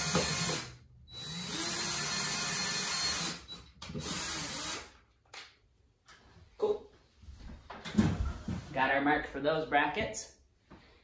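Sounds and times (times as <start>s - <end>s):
cordless drill drilling: 0.0s - 5.0s.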